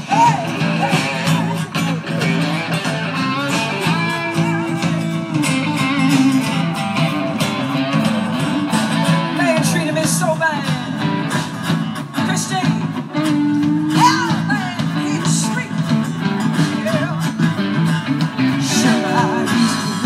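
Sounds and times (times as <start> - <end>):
person singing: 0.0 - 8.3, 12.2 - 17.4, 18.4 - 20.0
live rock band playing: 0.0 - 20.0.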